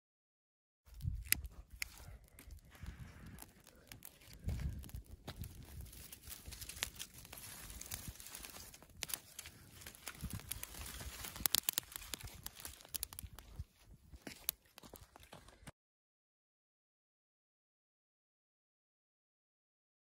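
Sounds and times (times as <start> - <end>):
brushwood fire crackling: 0.9 - 15.7.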